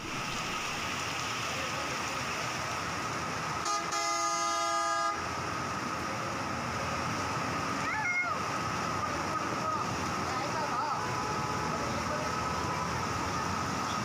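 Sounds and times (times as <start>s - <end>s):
heavy rain hiss: 0.0s - 14.0s
traffic: 0.0s - 14.0s
vehicle horn blast: 3.6s - 5.2s.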